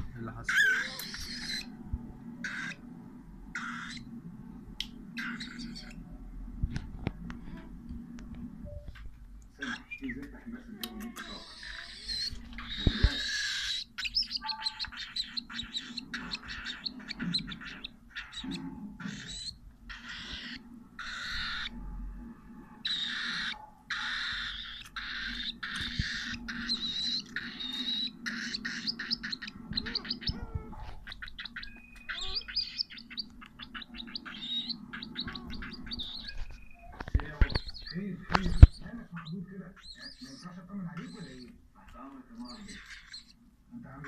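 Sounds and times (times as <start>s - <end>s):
cockatiel chirping and squawking: 0.4s - 1.7s, 2.4s - 2.8s, 3.5s - 4.1s, 5.2s - 6.0s, 9.6s - 10.3s, 11.1s - 21.7s, 22.8s - 41.6s, 42.4s - 43.4s
whistled bird notes: 31.2s - 41.5s.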